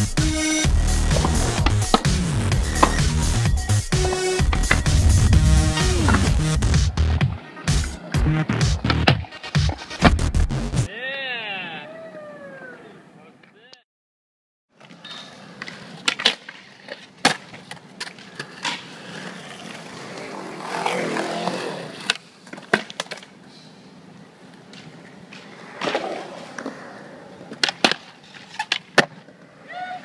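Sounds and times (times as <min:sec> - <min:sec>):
skateboard wheels rolling on concrete: 0:00.0 - 0:10.3, 0:14.7 - 0:30.0
skateboard clacking on concrete: 0:22.0 - 0:23.3, 0:27.4 - 0:29.4.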